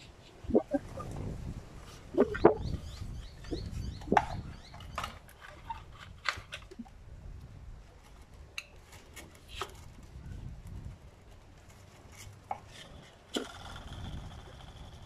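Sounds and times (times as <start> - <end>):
plastic clicks and crinkles: 4.8 - 7.0.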